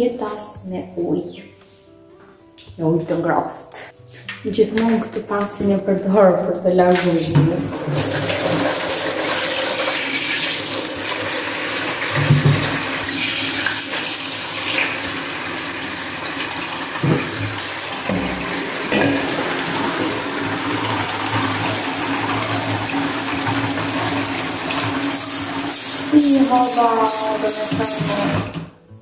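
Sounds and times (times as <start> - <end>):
tap running into sink: 7.0 - 15.2, 16.3 - 28.7
knocks in sink: 12.2 - 12.8, 17.0 - 20.3.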